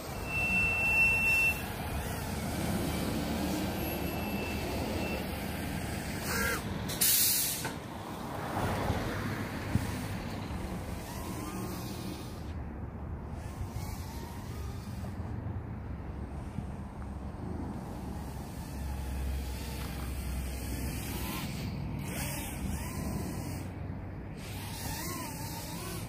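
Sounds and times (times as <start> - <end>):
traffic rumble: 0.0 - 26.0
loud hiss: 7.0 - 7.7.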